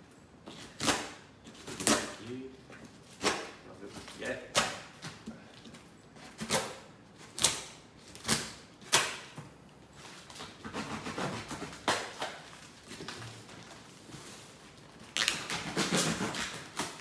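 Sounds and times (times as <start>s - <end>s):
cutting and scraping: 10.1s - 12.4s, 15.2s - 17.0s
blade stabbing cardboard box: 10.5s - 12.4s, 15.2s - 17.0s.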